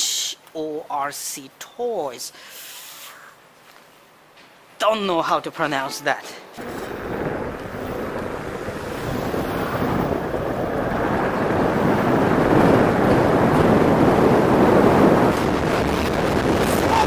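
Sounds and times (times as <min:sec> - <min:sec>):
wind rushing over microphone: 0:06.6 - 0:17.0.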